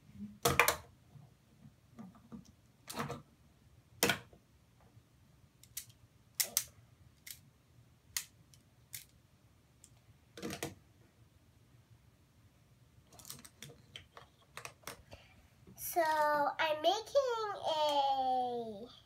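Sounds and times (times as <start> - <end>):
plastic magnet blocks clicking: 5.6 - 7.4, 8.1 - 9.2, 13.1 - 15.0.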